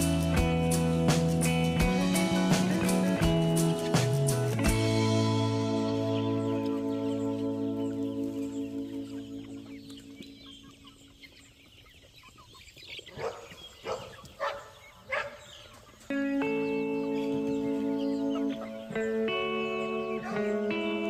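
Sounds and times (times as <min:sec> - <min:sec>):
background music: 0:00.0 - 0:10.8, 0:16.1 - 0:21.0
chicken calling: 0:01.8 - 0:21.0.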